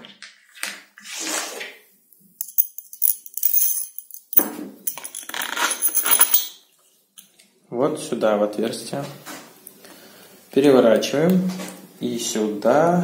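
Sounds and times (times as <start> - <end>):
metal hardware clinking: 2.4 - 6.6.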